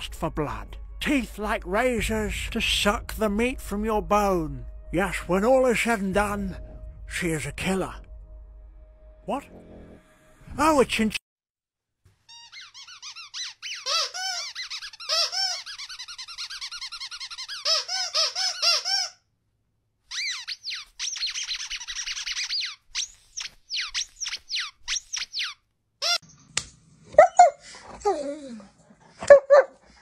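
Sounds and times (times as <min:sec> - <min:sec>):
rapid high-pitched squeaks: 0:12.3 - 0:18.9, 0:20.1 - 0:26.2.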